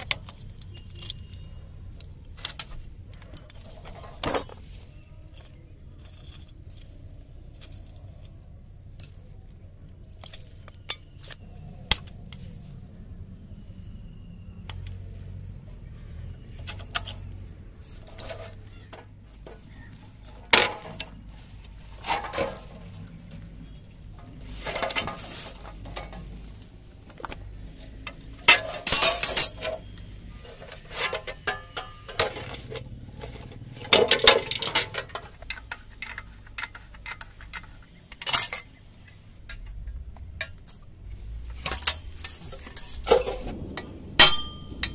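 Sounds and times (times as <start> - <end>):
hand tools clinking on metal: 0.0 - 9.4, 28.1 - 43.4
metallic clatter: 28.4 - 44.9.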